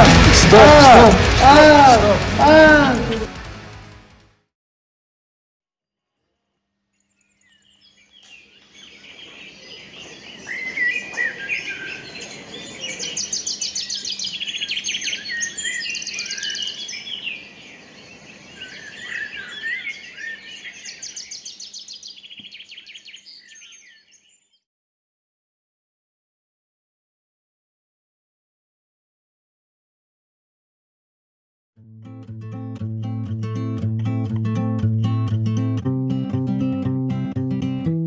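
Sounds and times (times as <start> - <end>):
birds chirping and trilling: 7.0 - 24.6.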